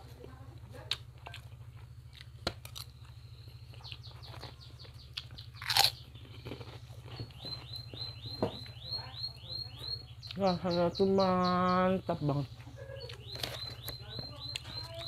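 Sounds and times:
chewing: 0:00.0 - 0:08.8
cracker crunch: 0:00.0 - 0:08.8, 0:12.4 - 0:15.0
steady low hum: 0:00.0 - 0:15.0
high falling chirps: 0:07.2 - 0:12.1.

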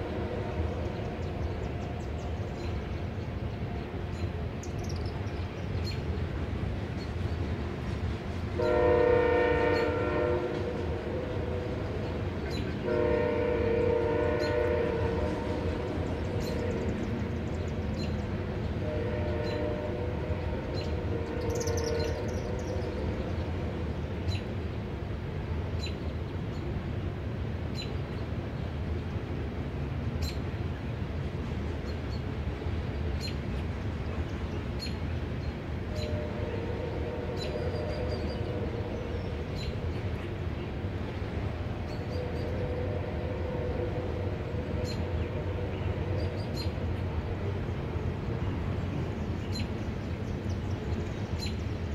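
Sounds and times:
train horn blasts: 0:00.0 - 0:01.9, 0:07.8 - 0:17.4, 0:18.0 - 0:24.4, 0:35.8 - 0:39.8, 0:41.1 - 0:48.7
passing train rumble: 0:00.0 - 0:51.9.

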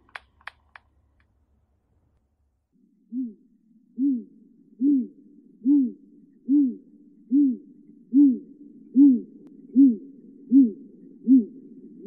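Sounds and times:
owl hooting: 0:03.0 - 0:12.0.

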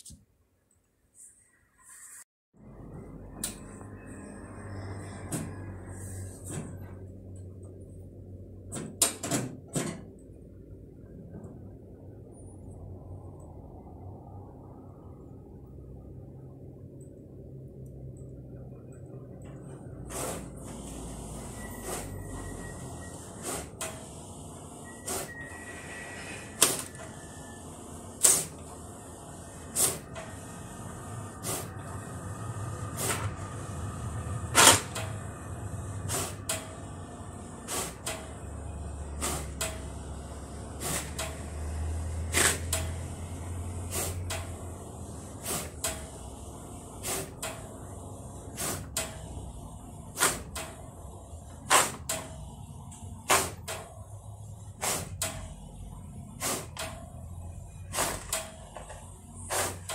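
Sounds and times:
printer low hum: 0:02.6 - 0:59.9
printer sharp clicks: 0:26.6 - 0:27.2, 0:28.2 - 0:28.7, 0:34.5 - 0:35.3, 0:36.0 - 0:37.0, 0:37.6 - 0:38.5, 0:39.2 - 0:40.0, 0:40.8 - 0:41.5, 0:42.3 - 0:43.1, 0:45.4 - 0:46.2, 0:47.0 - 0:47.9, 0:48.6 - 0:49.5, 0:50.1 - 0:51.0, 0:51.6 - 0:52.5, 0:53.2 - 0:54.0, 0:57.9 - 0:59.9.

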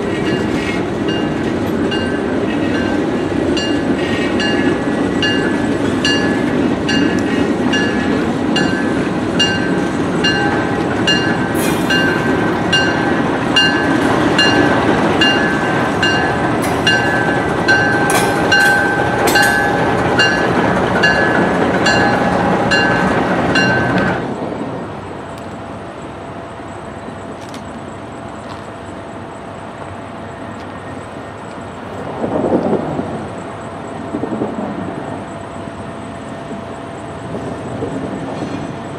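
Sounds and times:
train rumbling: 0:00.0 - 0:38.9
railroad crossing bell ringing: 0:00.1 - 0:24.2.

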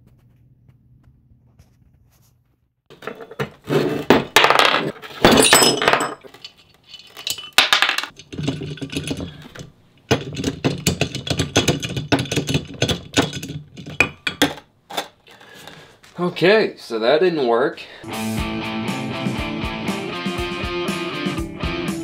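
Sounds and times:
metal clanking and scraping: 0:02.9 - 0:15.2
washers and bolts clinking: 0:02.9 - 0:15.2.

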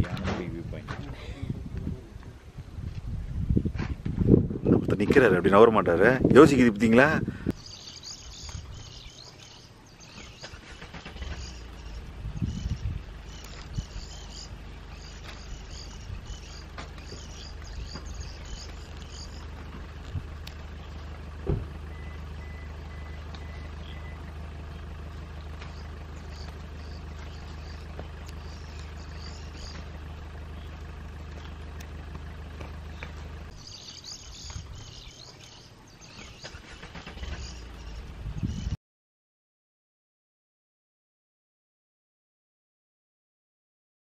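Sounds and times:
vehicle engine idling: 0:00.0 - 0:38.8
insects chirping: 0:07.6 - 0:19.7, 0:25.5 - 0:31.9, 0:32.8 - 0:38.1.

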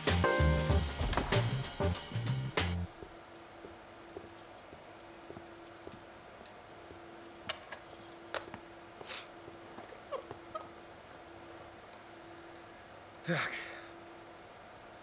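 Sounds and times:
faint steady hum: 0:00.0 - 0:15.0
soft footsteps: 0:02.9 - 0:06.1.

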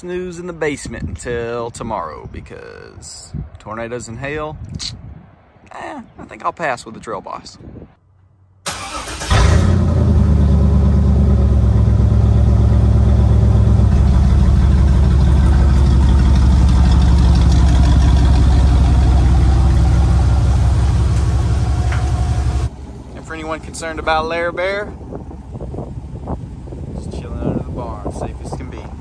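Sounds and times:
pickup truck engine idling: 0:08.7 - 0:26.8.

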